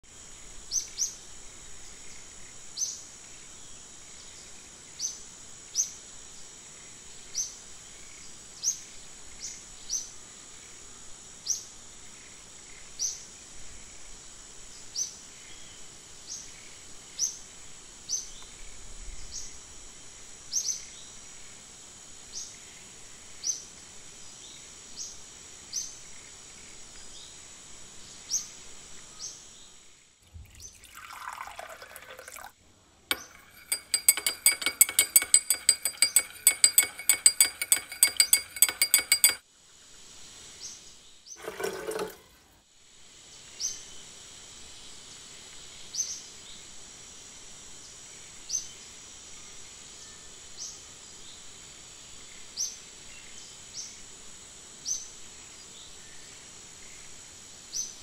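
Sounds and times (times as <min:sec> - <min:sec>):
faint hiss: 0:42.2 - 0:58.0.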